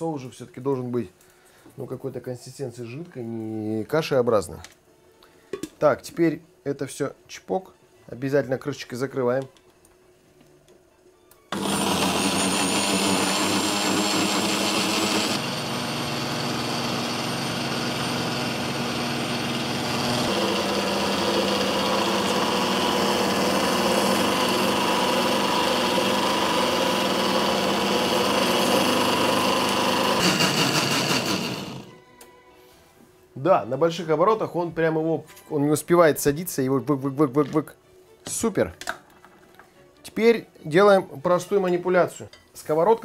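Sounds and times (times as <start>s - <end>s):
blender running: 11.5s - 32.0s.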